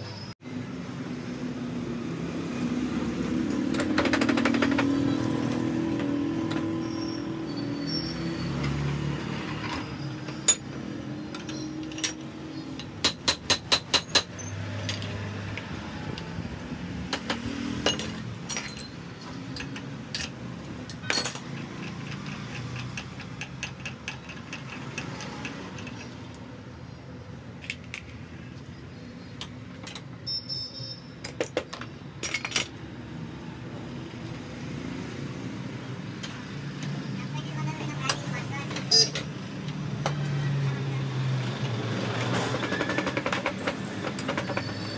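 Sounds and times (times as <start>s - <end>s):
metal parts clinking: 9.6s - 12.9s, 17.8s - 26.3s, 31.2s - 32.8s.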